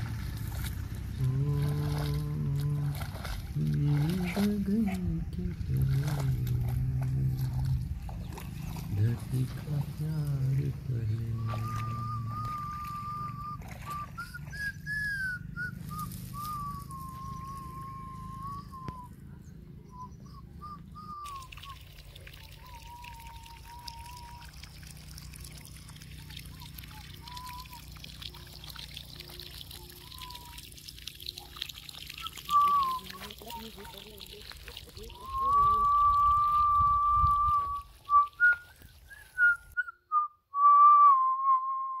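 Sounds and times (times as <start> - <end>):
low rumble: 0.0 - 22.1
person whistling a tune: 11.2 - 19.1, 19.9 - 21.9, 22.6 - 24.6, 27.2 - 27.8, 29.8 - 30.6, 32.2 - 33.7, 35.1 - 42.0.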